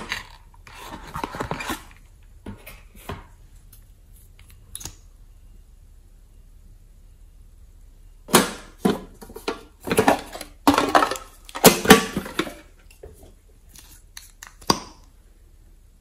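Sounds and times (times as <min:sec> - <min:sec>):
metal tin box knocks and rattles: 0:08.3 - 0:12.6.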